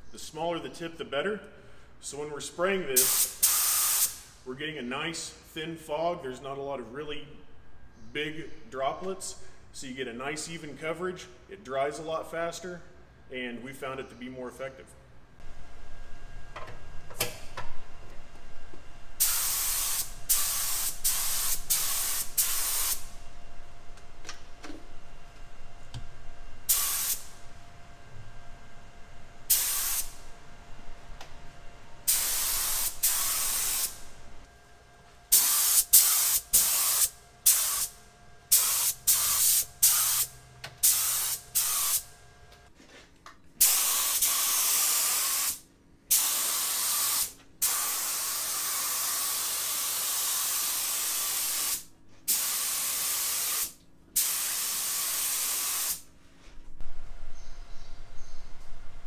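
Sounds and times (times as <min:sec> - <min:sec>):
spray gun hissing: 0:03.0 - 0:04.3, 0:19.2 - 0:23.2, 0:26.7 - 0:27.4, 0:29.5 - 0:30.2, 0:32.1 - 0:34.1, 0:35.3 - 0:42.1, 0:43.6 - 0:56.1.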